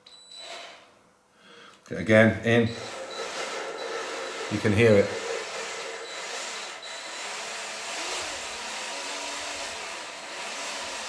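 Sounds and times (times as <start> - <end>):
cordless drill motor whine: 2.7 - 11.0
valve grinding rub: 2.7 - 11.0.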